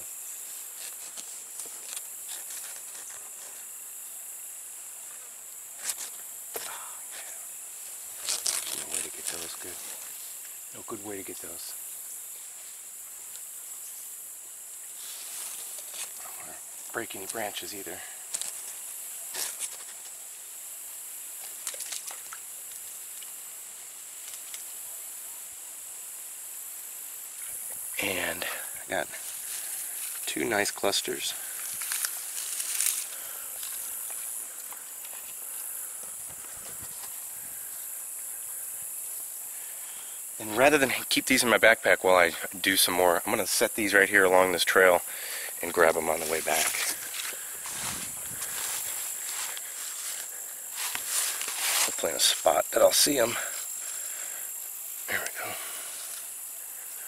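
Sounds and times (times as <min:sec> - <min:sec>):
insects chirring: 0:00.0 - 0:57.0
rustling and snapping of branches: 0:08.2 - 0:10.6, 0:21.4 - 0:23.4, 0:31.6 - 0:35.3.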